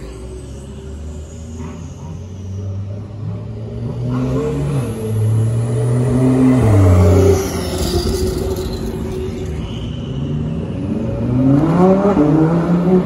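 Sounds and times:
sports car accelerating past: 0:00.2 - 0:13.0.

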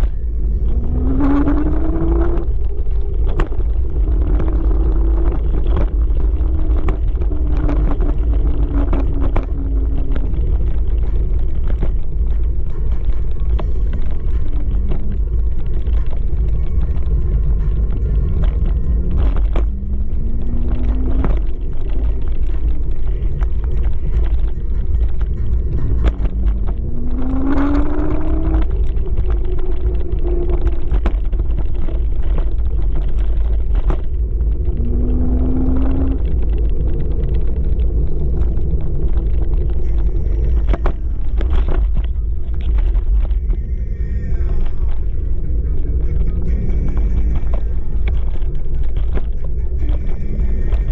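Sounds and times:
rising electric motor whine: 0:00.0 - 0:11.9, 0:25.0 - 0:41.0
road noise: 0:00.0 - 0:50.9
wind rumble on microphone: 0:00.0 - 0:50.9.

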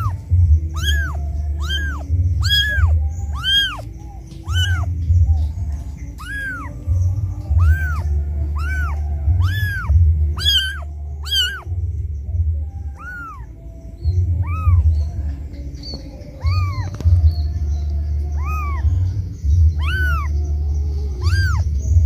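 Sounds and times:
kitten mewing: 0:00.0 - 0:11.8, 0:12.8 - 0:13.5, 0:14.3 - 0:15.0, 0:16.3 - 0:17.2, 0:18.3 - 0:19.0, 0:19.6 - 0:20.3, 0:21.1 - 0:21.8
low rumble: 0:00.0 - 0:22.0.

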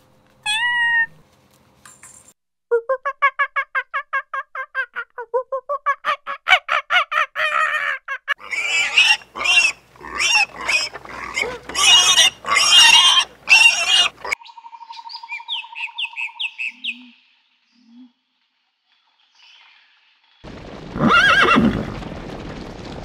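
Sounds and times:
monkey high calls: 0:06.0 - 0:14.4
piglets squealing and grunting: 0:06.0 - 0:14.4.

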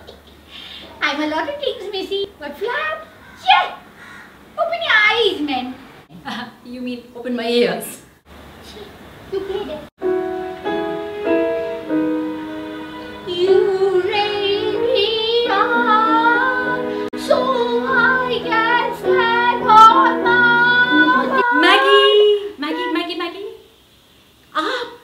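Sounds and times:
woman singing with vibrato: 0:13.0 - 0:23.6.

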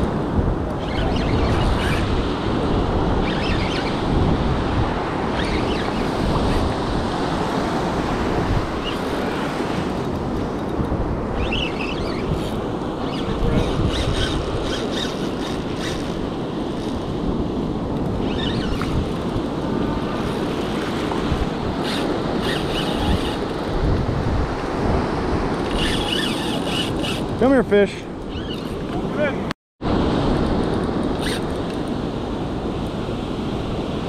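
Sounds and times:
surf washing in shallow water: 0:00.0 - 0:14.7
wind buffeting microphone: 0:00.0 - 0:34.0.

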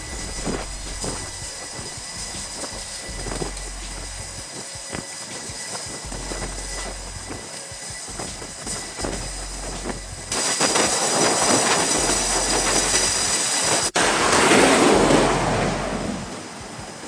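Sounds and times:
jet engines roaring: 0:00.0 - 0:17.0.

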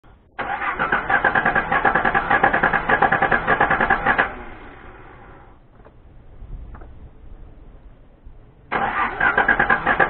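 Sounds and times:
engine cranking on starter: 0:00.3 - 0:05.6, 0:08.7 - 0:10.0.

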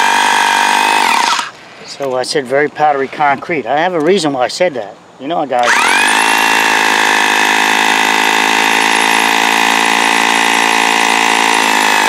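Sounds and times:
hammer drill boring concrete: 0:00.0 - 0:01.5, 0:05.6 - 0:12.0.

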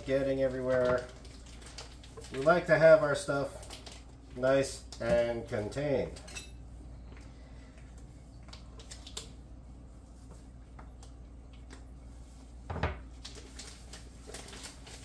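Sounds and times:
plastic packaging crinkling: 0:00.0 - 0:05.0, 0:13.0 - 0:15.0.

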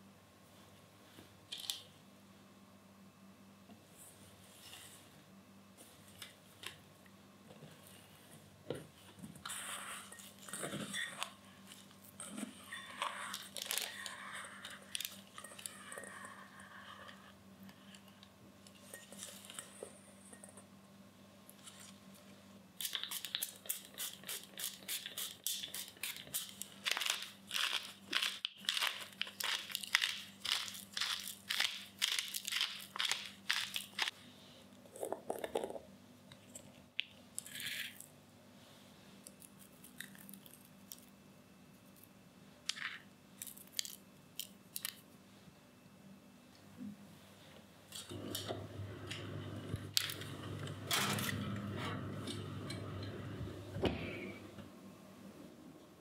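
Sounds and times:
pepper mill grinding: 0:22.8 - 0:34.1.

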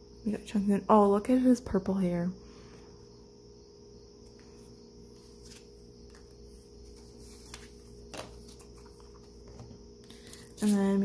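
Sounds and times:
steady low hum: 0:00.0 - 0:11.0
photo cards shuffled by hand: 0:05.2 - 0:11.0.

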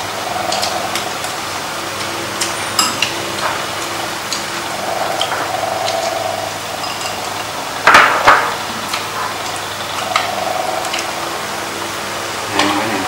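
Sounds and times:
steady low hum: 0:00.0 - 0:13.0
chopsticks clinking against bowls: 0:02.0 - 0:04.6, 0:06.8 - 0:07.5.

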